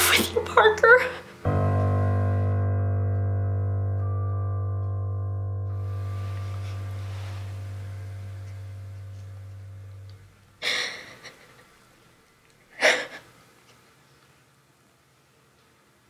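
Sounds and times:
held music chord: 1.4 - 10.6
woman crying with gasping breaths: 10.6 - 11.6, 12.7 - 13.4.

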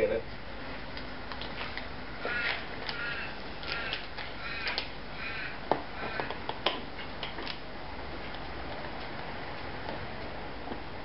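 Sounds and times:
crow cawing: 2.1 - 6.4.

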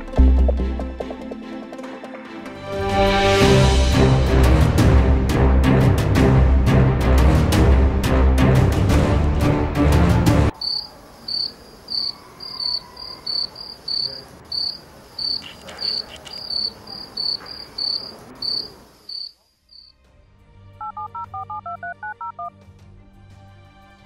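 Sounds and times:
crickets chirping: 10.5 - 19.9
phone keypad tones: 20.8 - 22.5.

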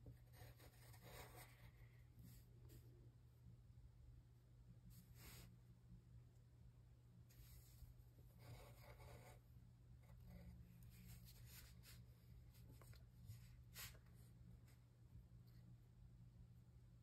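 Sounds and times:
pencil scratching on paper: 0.0 - 1.8, 8.3 - 9.4
low steady hum: 0.0 - 17.0.

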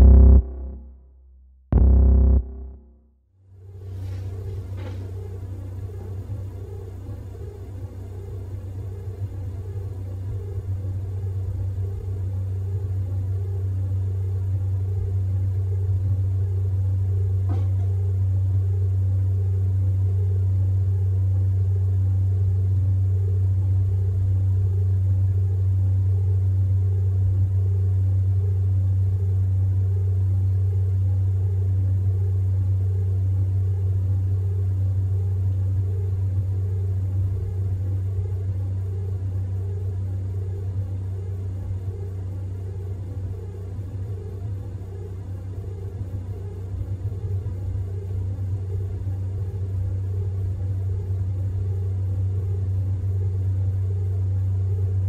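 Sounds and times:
low bass drone: 0.0 - 3.2
faint regular pulse: 0.0 - 12.2.

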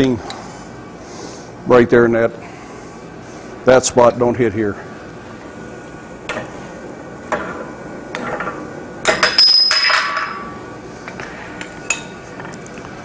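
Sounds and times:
metal tools clanking: 9.0 - 10.6.

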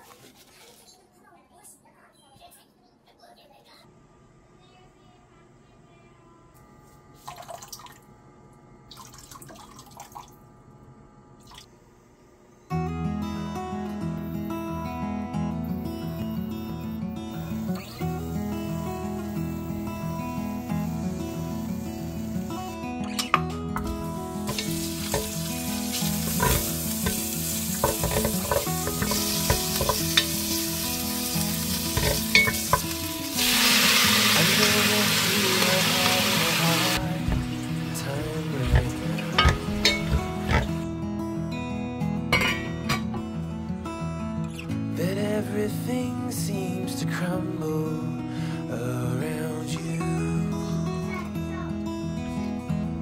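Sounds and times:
beef sizzling in pot: 23.8 - 40.8
wooden spoon scraping pot: 26.1 - 30.3, 31.8 - 32.9, 38.6 - 40.8.

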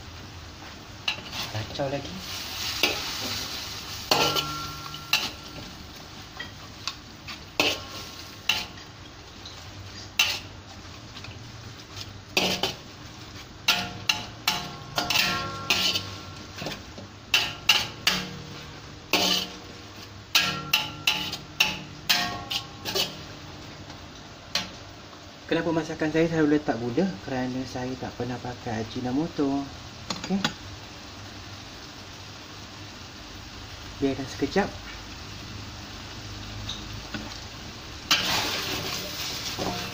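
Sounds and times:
light sizzle: 0.0 - 39.9
metal spatula clanking on a wok: 4.1 - 5.7, 7.6 - 8.8, 10.2 - 10.5, 12.4 - 12.8, 13.6 - 18.5, 19.1 - 19.6, 20.3 - 23.3, 38.1 - 38.8, 39.6 - 39.9.

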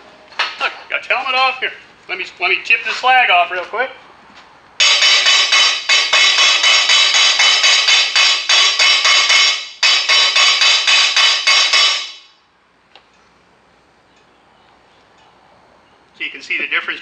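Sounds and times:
chipping hammer tapping metal: 4.8 - 12.3.

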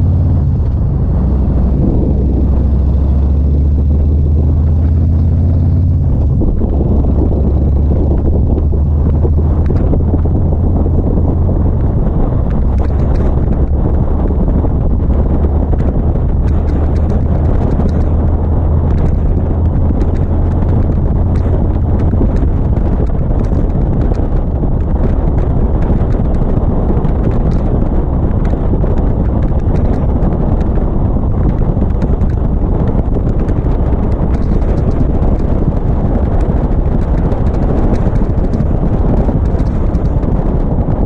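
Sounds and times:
motorcycle engine running: 0.0 - 41.0
wind noise on microphone: 0.0 - 41.0.

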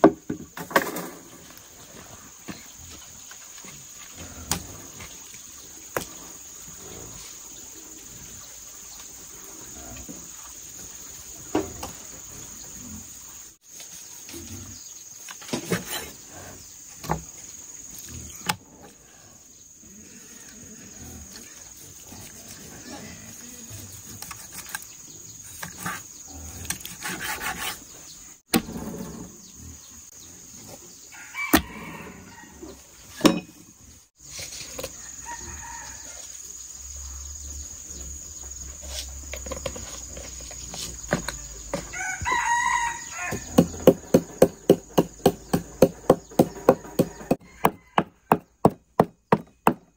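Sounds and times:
rooster crowing: 31.1 - 32.8, 35.0 - 36.3, 41.8 - 43.7, 46.3 - 48.4
pestle pounding in wooden mortar: 43.4 - 49.9.

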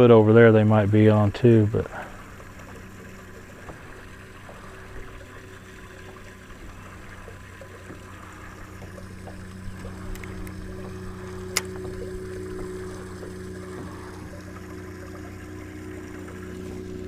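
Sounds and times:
water splashing: 0.0 - 17.0
electric motor humming: 1.9 - 17.0
light clicks: 8.8 - 13.9.

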